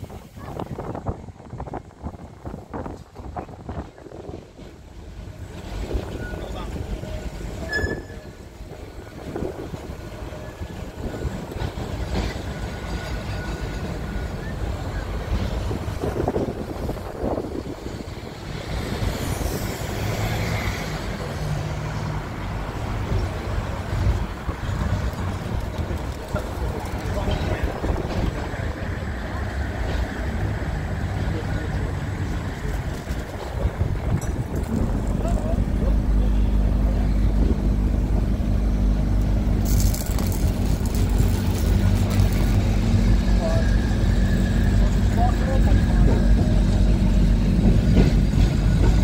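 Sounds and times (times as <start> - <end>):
tram rumbling on track: 0.0 - 49.0.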